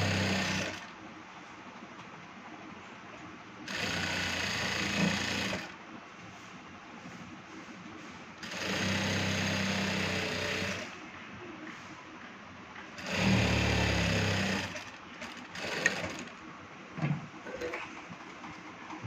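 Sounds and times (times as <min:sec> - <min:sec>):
sewing machine stitching: 0:00.0 - 0:00.9, 0:03.7 - 0:05.7, 0:08.4 - 0:10.9, 0:13.0 - 0:16.4.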